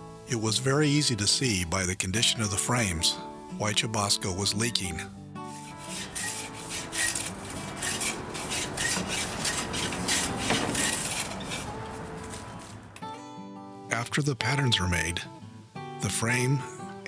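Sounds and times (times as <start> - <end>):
rasping strokes on wood: 5.5 - 12.9.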